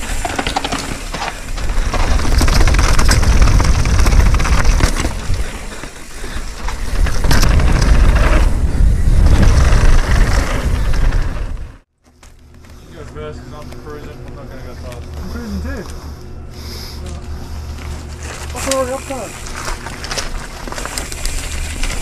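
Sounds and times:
bike clattering over rocks: 0:00.0 - 0:08.6
wind rumble on microphone: 0:01.7 - 0:05.6, 0:06.8 - 0:11.8.

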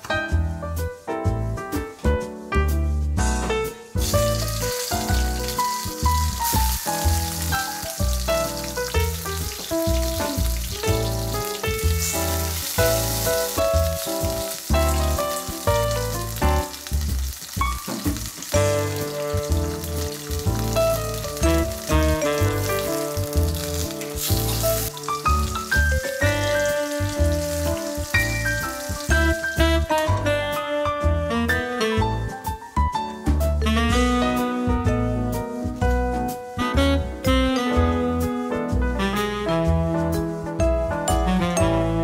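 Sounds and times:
light jazz music: 0:00.0 - 0:42.0
tomato slices sizzling in oil: 0:03.9 - 0:30.7.

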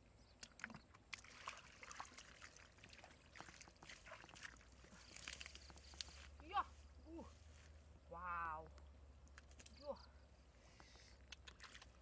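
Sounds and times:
splashing in shallow muddy water: 0:00.3 - 0:06.4, 0:11.2 - 0:12.0.

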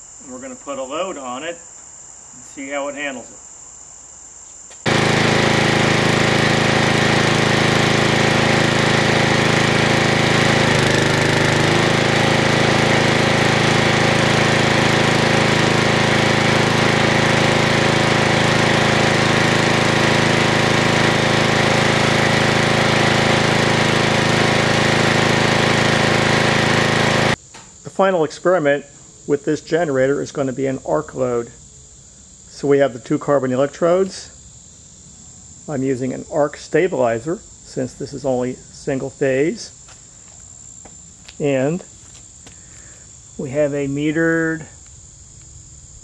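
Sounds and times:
generator running: 0:04.8 - 0:27.7.

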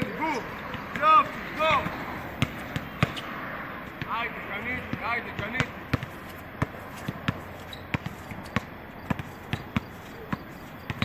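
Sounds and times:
basketball bouncing on hard court: 0:00.6 - 0:03.4, 0:04.8 - 0:11.0.

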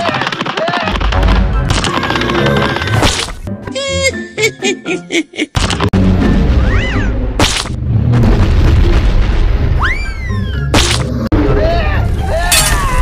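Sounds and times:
cartoon music: 0:03.6 - 0:05.3.

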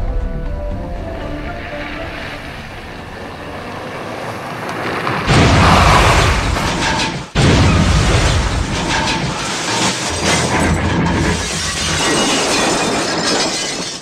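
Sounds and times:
rumble: 0:00.0 - 0:13.9
car crashing down rocky slope: 0:04.6 - 0:14.0
crashing and clattering: 0:05.1 - 0:14.0.

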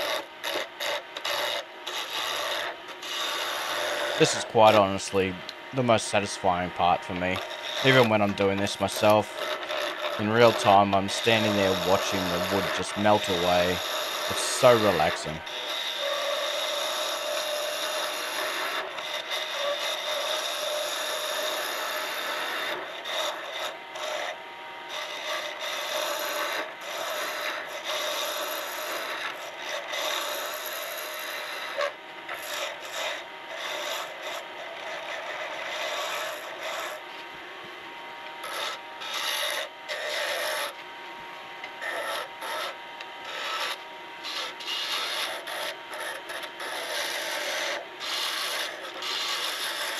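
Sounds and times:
lathe tool scraping wood: 0:00.0 - 0:37.3, 0:37.9 - 0:41.0, 0:41.6 - 0:49.9.

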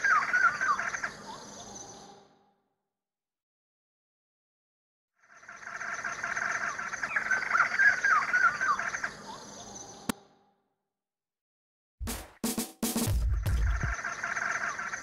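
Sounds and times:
birds chirping: 0:00.0 - 0:02.5, 0:05.3 - 0:10.2, 0:13.4 - 0:15.0.

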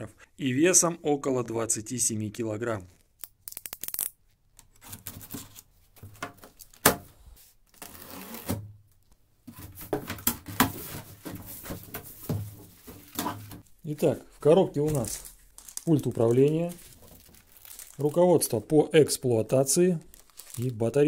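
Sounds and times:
knife slitting packing tape: 0:03.2 - 0:04.2
cardboard rustling: 0:09.5 - 0:18.2.

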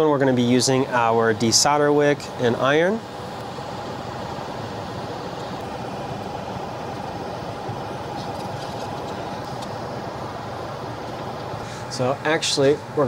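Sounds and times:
fan whirring: 0:00.0 - 0:13.0.

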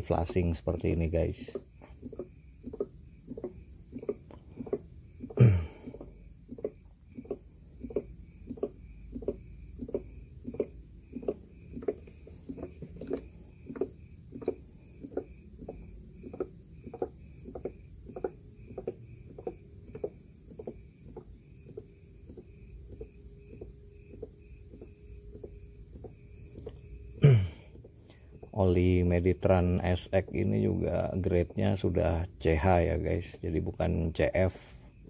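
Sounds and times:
oil glugging from a jug: 0:00.0 - 0:28.6.

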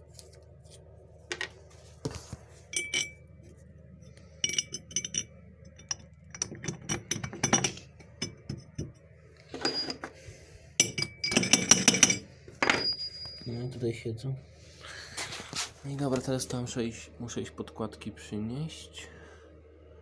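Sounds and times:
metal nuts and washers clinking: 0:02.7 - 0:03.2, 0:04.4 - 0:10.1, 0:10.8 - 0:13.5.

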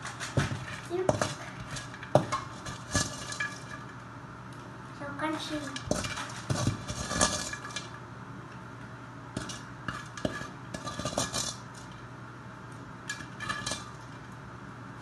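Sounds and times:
utensil scraping a pan: 0:00.0 - 0:04.0, 0:05.6 - 0:08.0, 0:09.4 - 0:12.0, 0:13.1 - 0:14.2
steady low hum: 0:00.0 - 0:15.0.

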